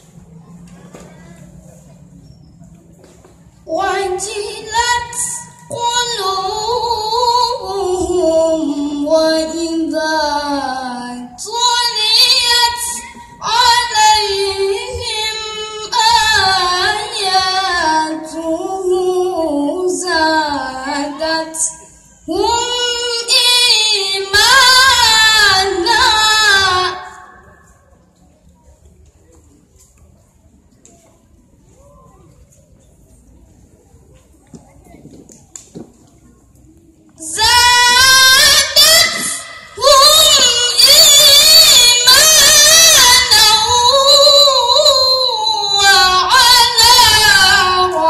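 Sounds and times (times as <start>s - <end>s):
boy reciting melodically: 3.7s - 28.0s, 37.2s - 48.0s.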